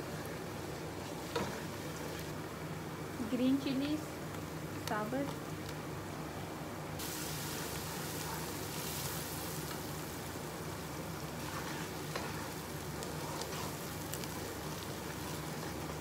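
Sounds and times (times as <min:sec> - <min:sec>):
food frying in hot oil: 0:00.0 - 0:05.9, 0:07.0 - 0:16.0
wooden spatula stirring: 0:01.0 - 0:02.4, 0:11.3 - 0:16.0.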